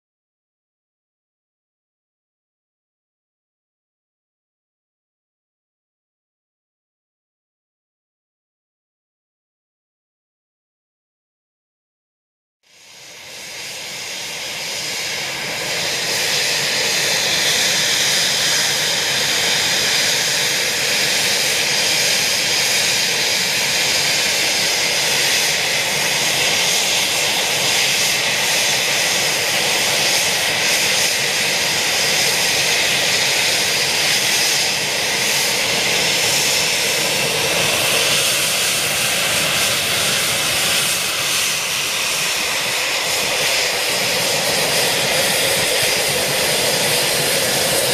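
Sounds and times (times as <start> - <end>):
jet engines idling with whine: 12.6 - 47.9.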